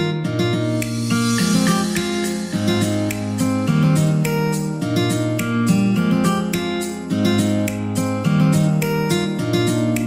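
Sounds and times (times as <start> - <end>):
upbeat acoustic guitar music: 0.0 - 10.0.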